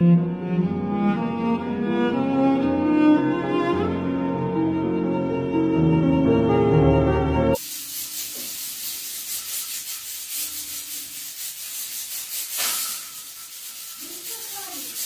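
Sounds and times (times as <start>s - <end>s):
gas stove hissing: 7.6s - 15.0s.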